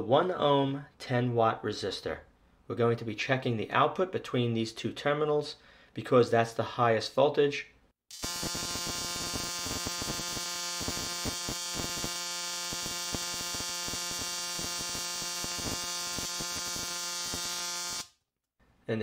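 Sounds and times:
electric spark buzzing and crackling: 0:08.1 - 0:18.2.

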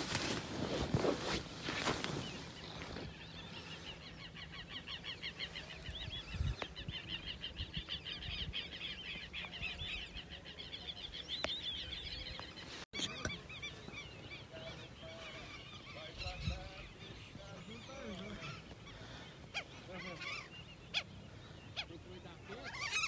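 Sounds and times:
birds chirping: 0:01.0 - 0:23.0.

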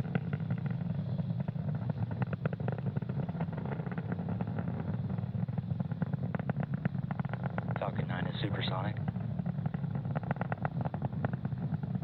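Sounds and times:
rocket engines rumbling and crackling: 0:00.0 - 0:12.0.

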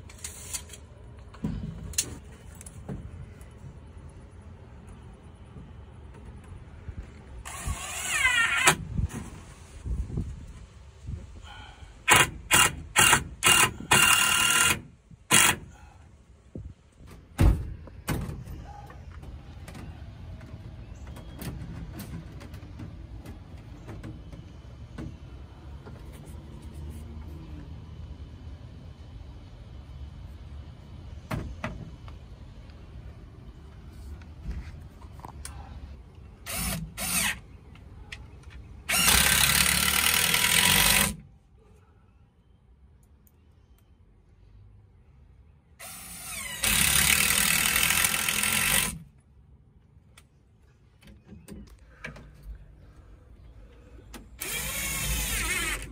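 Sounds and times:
cordless drill driving screws: 0:07.4 - 0:08.8, 0:12.1 - 0:15.7, 0:36.4 - 0:37.4, 0:38.9 - 0:41.2, 0:45.8 - 0:49.0, 0:54.4 - 0:55.9.

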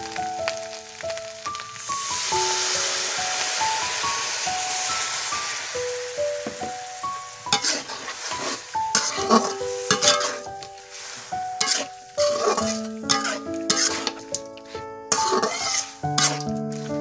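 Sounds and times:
food sizzling: 0:00.0 - 0:17.0
metal spatula scraping wok: 0:07.4 - 0:17.0.

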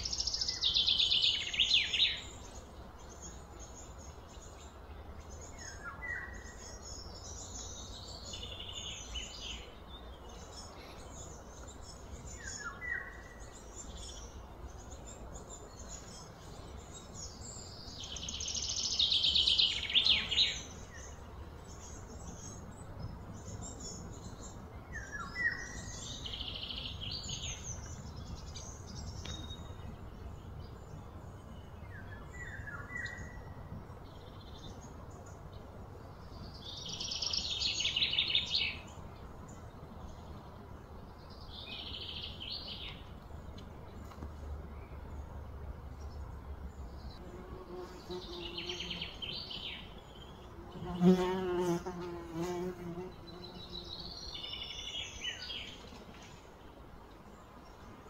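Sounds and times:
birds chirping: 0:00.0 - 0:58.0
insects buzzing: 0:47.2 - 0:55.6.

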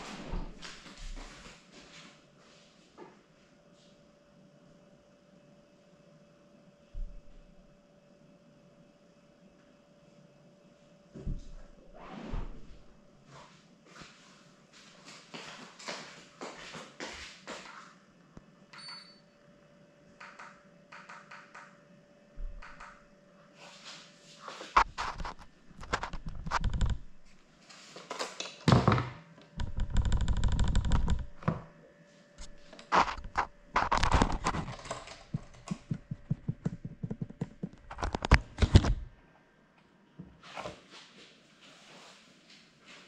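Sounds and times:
knocks thuds and clicks: 0:33.2 - 0:39.0.

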